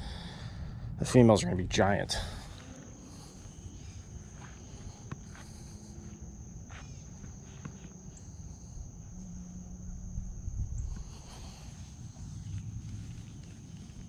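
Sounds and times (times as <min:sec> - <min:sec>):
low rumble: 0:00.0 - 0:05.0, 0:08.5 - 0:14.0
insects trilling: 0:00.0 - 0:14.0.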